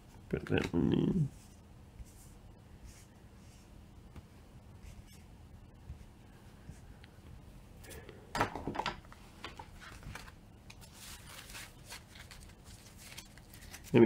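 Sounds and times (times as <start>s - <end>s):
cards rustling and scraping: 9.4s - 14.0s.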